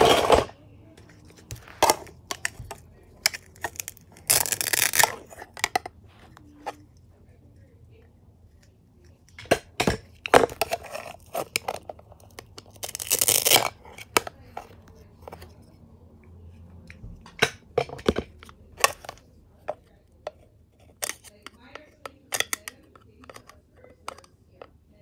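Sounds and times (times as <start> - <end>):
plastic toy clicks and knocks: 20.2 - 24.7.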